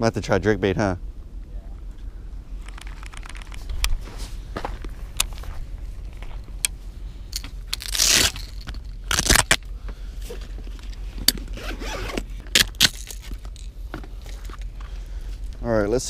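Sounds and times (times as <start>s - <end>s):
clicks and knocks of gear: 2.6s - 9.6s, 10.4s - 15.6s
rustling scrapes: 2.8s - 6.4s.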